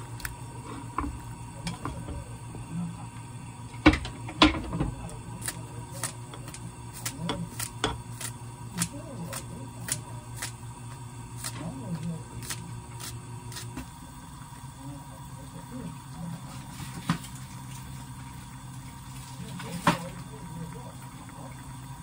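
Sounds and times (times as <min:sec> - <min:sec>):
kitchen scissors snipping: 0:05.4 - 0:10.6, 0:11.4 - 0:11.7, 0:12.4 - 0:13.7.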